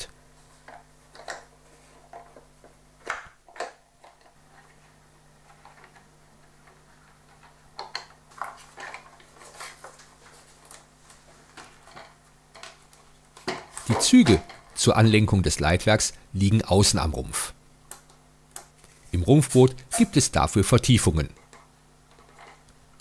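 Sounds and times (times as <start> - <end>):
faint steady hum: 0.0 - 23.0
plastic parts clicking and tapping: 0.6 - 4.7, 5.5 - 10.9.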